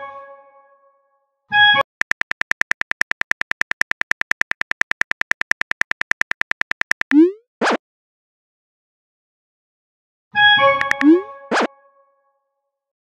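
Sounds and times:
keyboard typing clicks: 0:01.8 - 0:07.4, 0:10.8 - 0:11.2.

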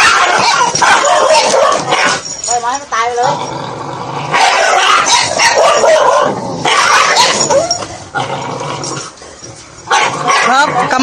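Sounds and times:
dog yelping and whimpering: 0:00.0 - 0:02.5, 0:04.4 - 0:08.0.

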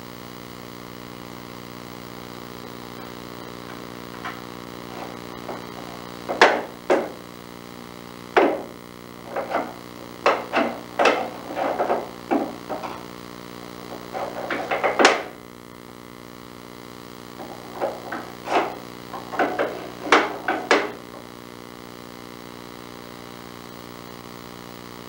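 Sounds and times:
steady low hum: 0:00.0 - 0:23.7
parakeet pecking wooden drawer: 0:03.0 - 0:07.2, 0:08.4 - 0:13.1, 0:13.8 - 0:15.4, 0:17.4 - 0:21.2.

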